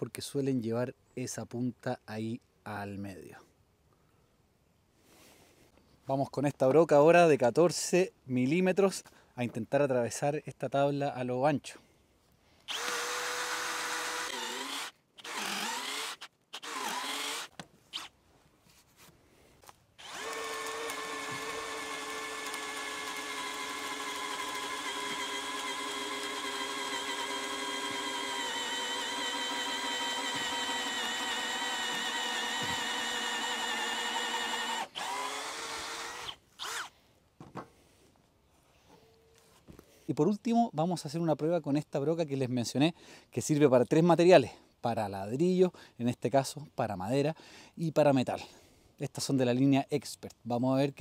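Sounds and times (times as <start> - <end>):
cordless drill boring through wood: 12.7 - 18.1, 20.0 - 36.9.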